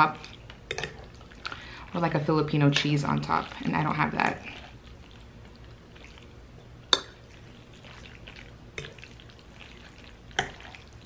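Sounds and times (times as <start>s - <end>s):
wet spaghetti stirring: 0.0s - 11.0s.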